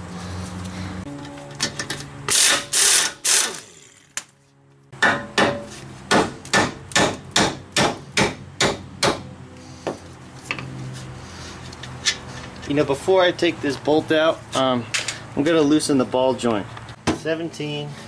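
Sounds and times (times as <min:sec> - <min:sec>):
air impact wrench rattling: 0:02.3 - 0:04.1
hammer striking steel: 0:05.0 - 0:09.3.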